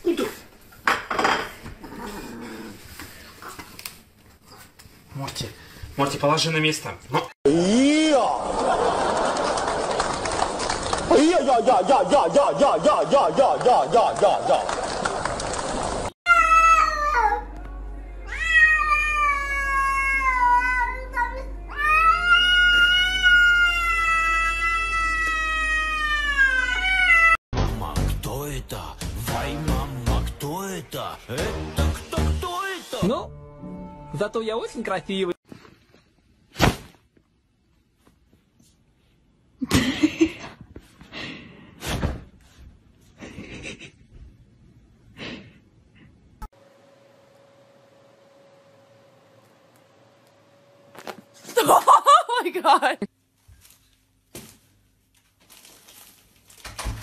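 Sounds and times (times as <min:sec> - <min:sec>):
cat meowing: 0:18.3 - 0:21.0, 0:21.7 - 0:27.4.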